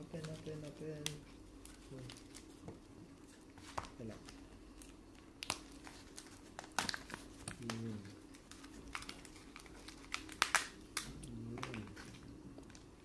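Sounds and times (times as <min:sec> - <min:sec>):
plastic and cardboard crinkling: 0:00.0 - 0:12.9.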